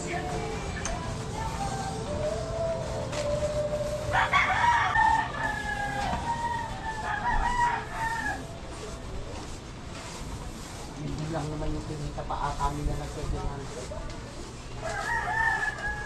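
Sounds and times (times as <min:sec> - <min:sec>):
rooster crowing: 0:04.1 - 0:08.5, 0:14.8 - 0:16.0.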